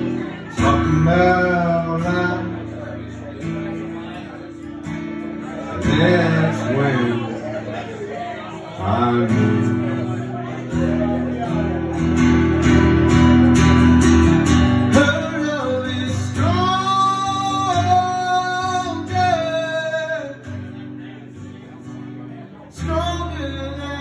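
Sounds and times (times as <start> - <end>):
guitar strummed chords: 0.0 - 24.0
person singing: 14.8 - 20.6.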